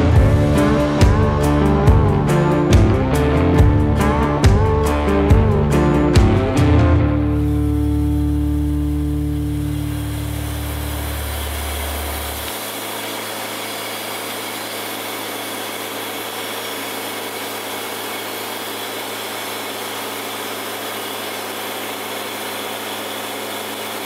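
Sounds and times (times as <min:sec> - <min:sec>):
low music notes: 0:00.0 - 0:12.3
band sawmill running: 0:00.0 - 0:24.0.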